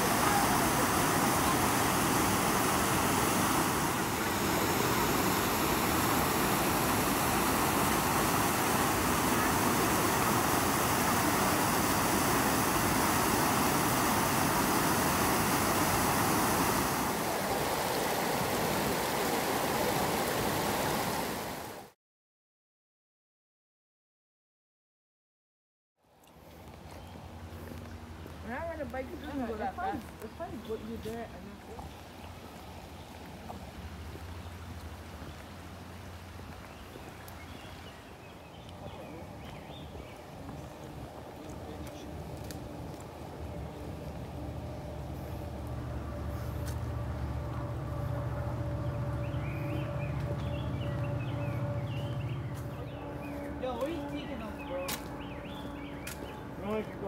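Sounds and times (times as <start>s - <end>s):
creek water rushing over rocks: 0.0s - 21.9s, 29.9s - 53.6s
low rumble: 42.1s - 56.6s.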